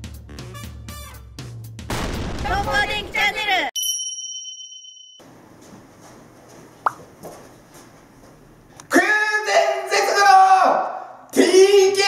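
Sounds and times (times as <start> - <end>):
man shouting loudly: 8.9 - 12.0.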